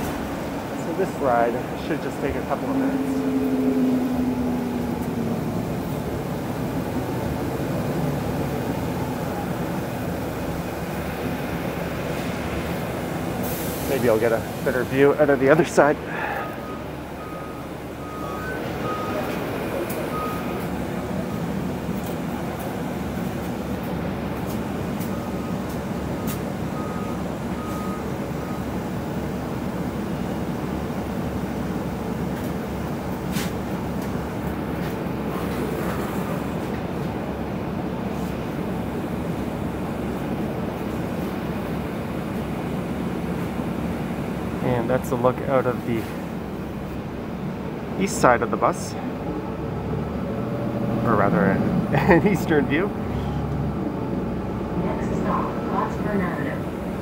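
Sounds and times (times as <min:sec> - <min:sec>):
held engine tone: 0:00.0 - 0:12.0, 0:12.7 - 0:32.0
bus engine and road rumble: 0:00.0 - 0:57.0
short beeps: 0:16.6 - 0:20.6.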